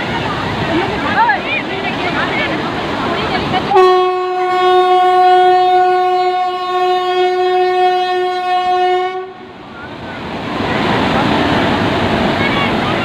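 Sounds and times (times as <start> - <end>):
flooded river rushing: 0.0 - 13.0
electric locomotive horn: 3.7 - 9.5.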